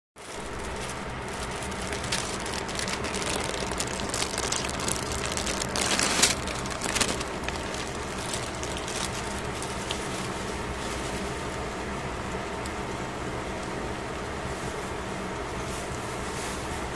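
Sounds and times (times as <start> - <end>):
aluminium foil crinkling: 0.2 - 11.6
steady low hum: 0.2 - 16.9.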